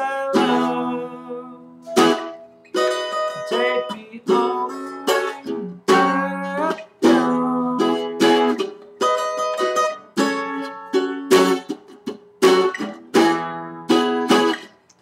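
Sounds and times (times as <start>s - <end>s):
acoustic guitar strumming chords: 0.0s - 14.8s.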